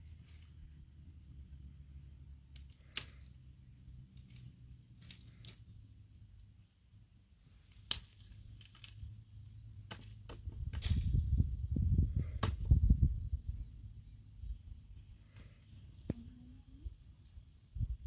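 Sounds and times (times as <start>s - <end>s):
dry twigs snapping: 2.4s - 5.8s, 7.6s - 9.1s, 9.9s - 11.4s.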